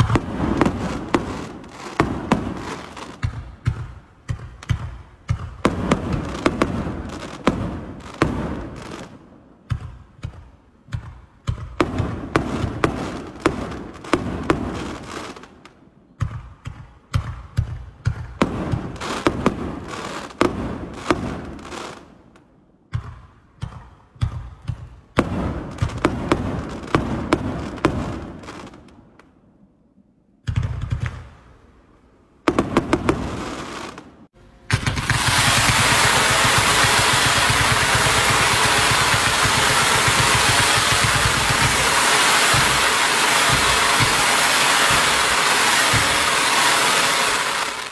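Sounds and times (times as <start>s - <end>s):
firework aerial bursts with crackle: 0.0s - 29.4s, 32.5s - 47.9s
firework launch thumps: 34.7s - 47.9s.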